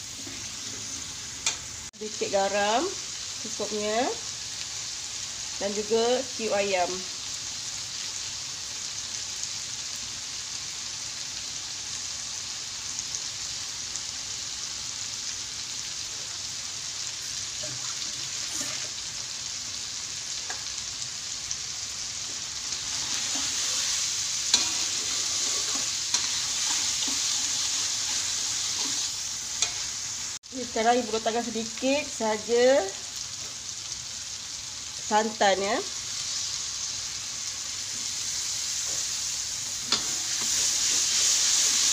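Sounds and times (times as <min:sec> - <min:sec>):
paste sizzling in a wok: 0:00.0 - 0:41.9.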